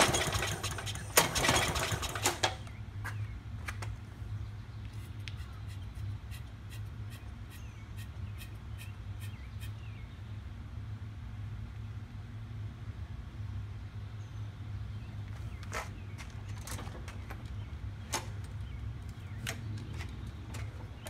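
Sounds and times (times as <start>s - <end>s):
lawn mower engine running: 0.0s - 2.8s.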